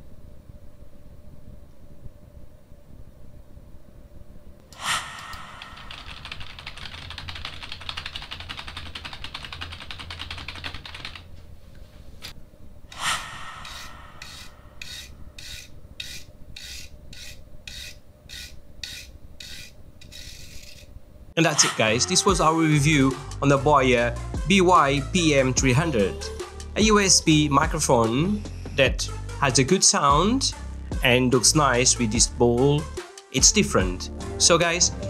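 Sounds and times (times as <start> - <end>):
computer keyboard typing: 5.4 - 11.3
toothbrush scraping microphone grille: 13.7 - 20.9.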